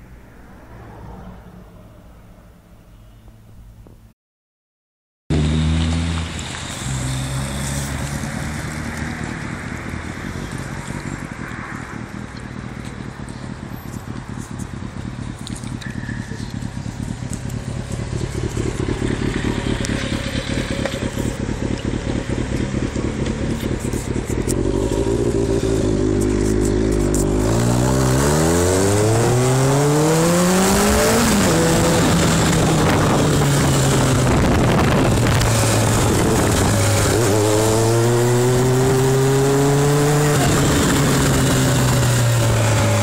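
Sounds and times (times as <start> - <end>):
motorcycle engine revving: 5.3 - 43.0
wind rushing: 30.8 - 37.9.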